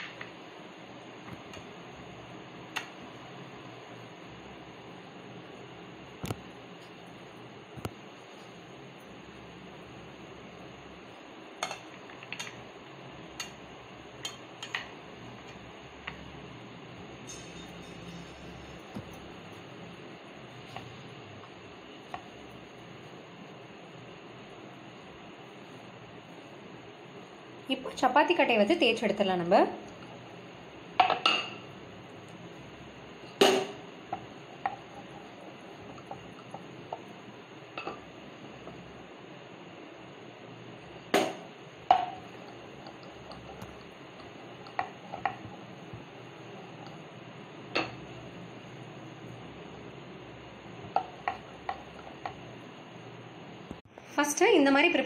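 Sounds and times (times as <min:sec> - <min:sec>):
kitchenware clinking: 0:17.2 - 0:19.3.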